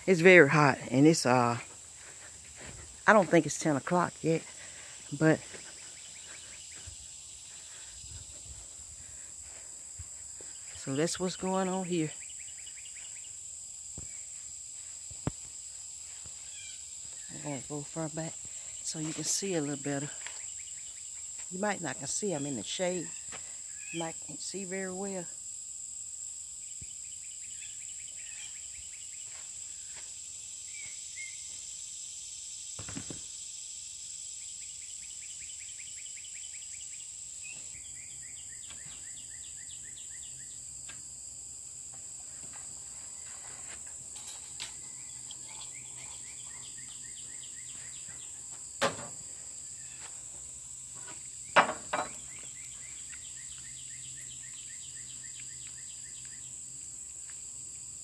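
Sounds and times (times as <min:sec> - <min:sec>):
insects buzzing: 0:00.0 - 0:58.0
sharp knocks: 0:48.8 - 0:49.2, 0:51.6 - 0:52.2.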